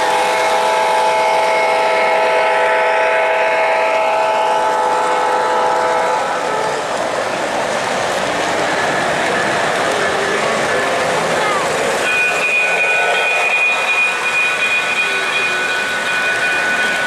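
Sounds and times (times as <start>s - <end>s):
model train horn chord: 0.0s - 6.8s
model freight cars rolling: 3.9s - 17.0s.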